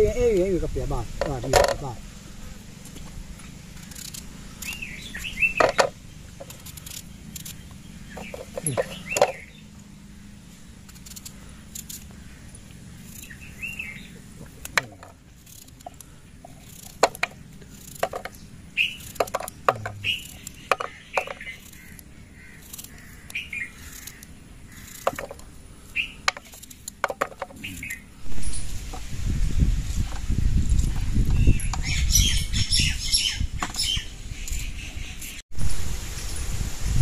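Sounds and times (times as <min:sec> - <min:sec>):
birds chirping: 0:00.0 - 0:30.4, 0:31.1 - 0:35.4
knife cutting apple: 0:18.9 - 0:25.4
wind rumbling on microphone: 0:28.1 - 0:37.0.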